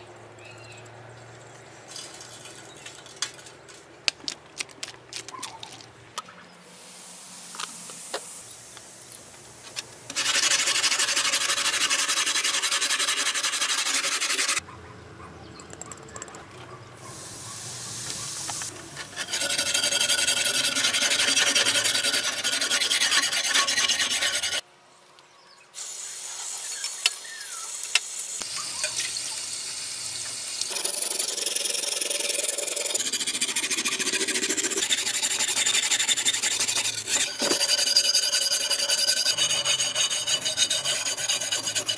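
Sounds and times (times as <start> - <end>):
wire brush scrubbing steel: 10.1 - 14.6, 17.0 - 24.6, 30.7 - 41.9.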